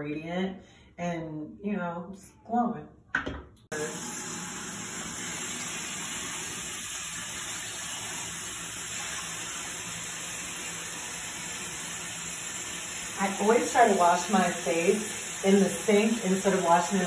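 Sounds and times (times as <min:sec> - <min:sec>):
faucet water running into sink: 0:03.7 - 0:17.0.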